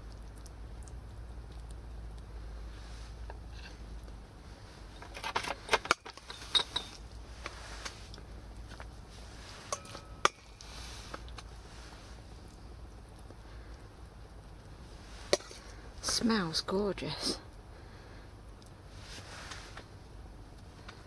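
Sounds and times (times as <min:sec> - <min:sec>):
metal utensils clinking: 0:05.0 - 0:07.0, 0:09.6 - 0:10.6.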